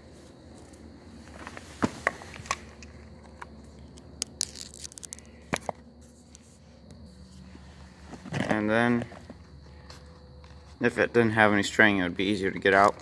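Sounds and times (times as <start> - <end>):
plastic parts clicking and scraping: 1.8 - 6.5.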